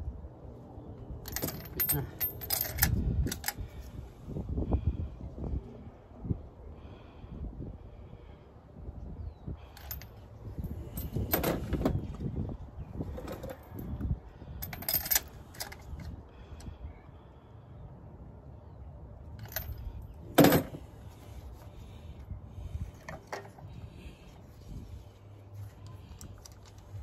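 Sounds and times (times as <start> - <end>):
steady low rumble: 0.0 - 27.0
tools clinking in engine bay: 1.2 - 3.6, 9.7 - 12.0, 13.2 - 14.0, 14.6 - 16.1, 19.4 - 20.8.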